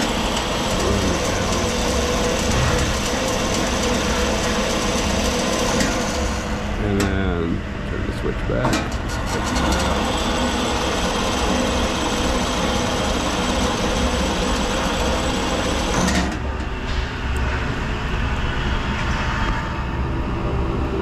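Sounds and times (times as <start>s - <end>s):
grinder motor and gearing running: 0.0s - 7.6s, 8.5s - 16.4s
steady machine hum: 0.0s - 21.0s.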